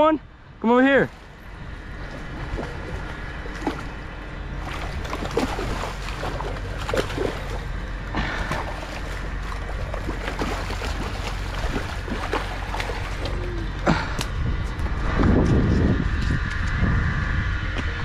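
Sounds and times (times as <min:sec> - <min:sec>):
steady low rumble: 0:00.0 - 0:18.0
fish splashing in water: 0:01.2 - 0:13.8.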